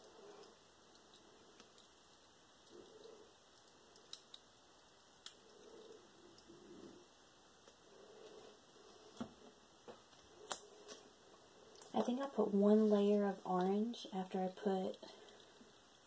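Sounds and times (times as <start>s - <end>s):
faint clicks: 0.0s - 6.6s.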